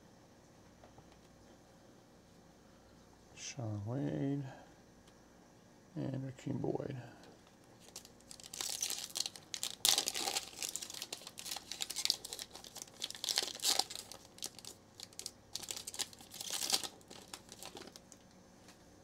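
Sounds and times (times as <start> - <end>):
foil wrapper crinkling: 7.7 - 18.3.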